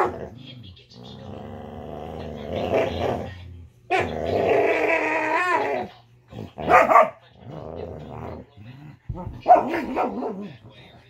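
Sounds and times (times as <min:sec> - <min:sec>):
dog barking: 0:00.0 - 0:00.2, 0:06.6 - 0:07.3, 0:09.4 - 0:10.5
dogs growling: 0:00.0 - 0:11.0.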